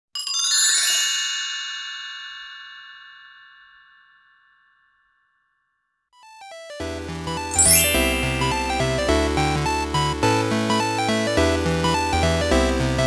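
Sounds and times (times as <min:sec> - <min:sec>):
shimmering chime ringing: 0:07.5 - 0:09.4.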